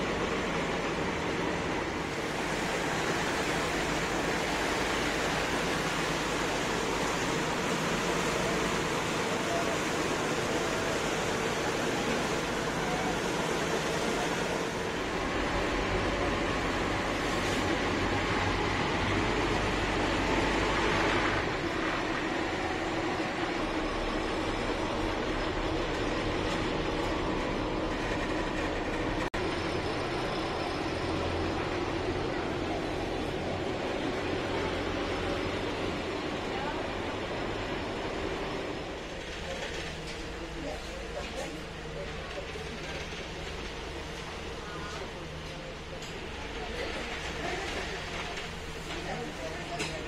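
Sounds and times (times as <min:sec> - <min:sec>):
motorboat engine droning: 0:00.0 - 0:50.0.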